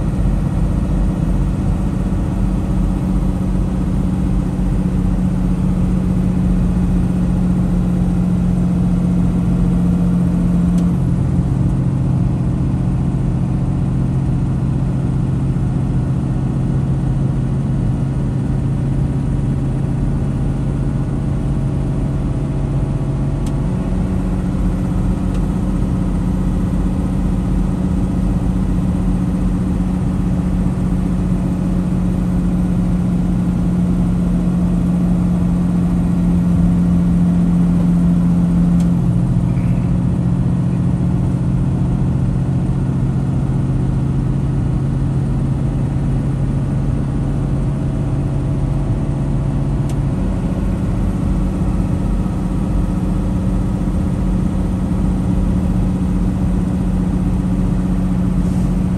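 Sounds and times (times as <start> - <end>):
road noise: 0.0 - 14.4, 32.3 - 43.6, 45.6 - 58.9
truck diesel engine drone: 0.0 - 58.9.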